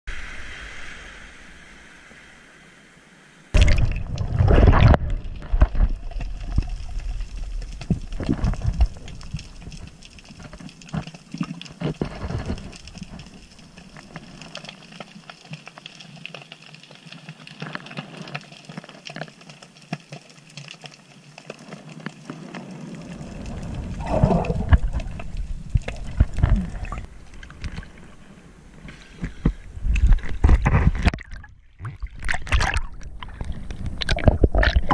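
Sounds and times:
sea water splashing: 3.6 - 16.2, 21.2 - 34.9.

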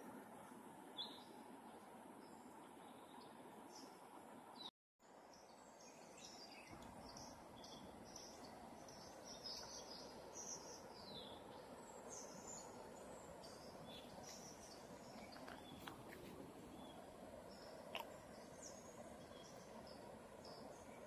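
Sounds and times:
low steady hiss: 0.0 - 21.0
birds chirping: 5.3 - 21.0.

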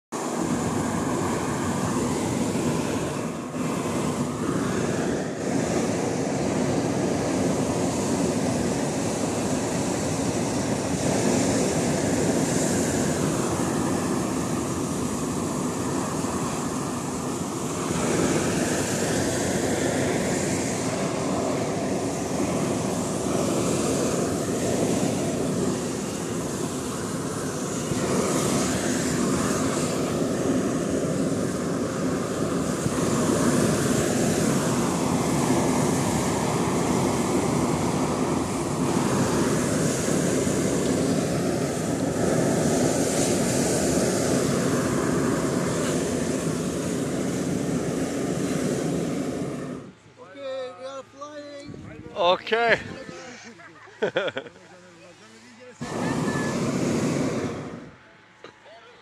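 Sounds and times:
inflation fans running: 0.2 - 59.0
propane burners firing: 0.3 - 50.4, 55.6 - 59.0.

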